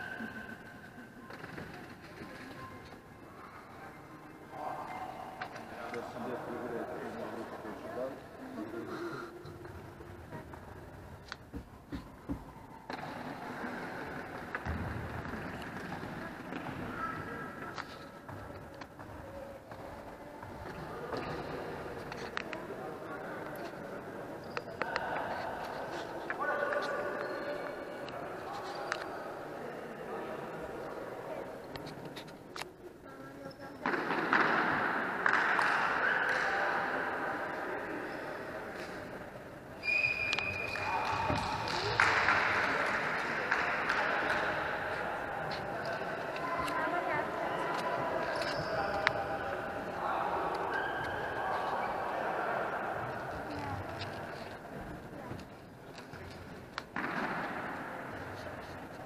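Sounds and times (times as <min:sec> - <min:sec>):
people shouting in a hall: 0:35.2 - 0:38.6, 0:39.8 - 0:53.7.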